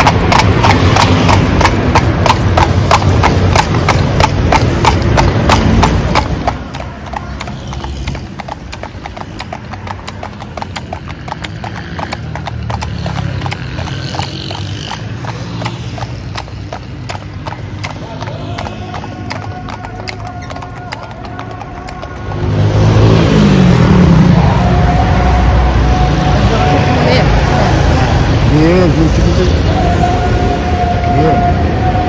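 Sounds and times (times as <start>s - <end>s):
horse hooves clip-clopping on asphalt: 0.0s - 23.6s.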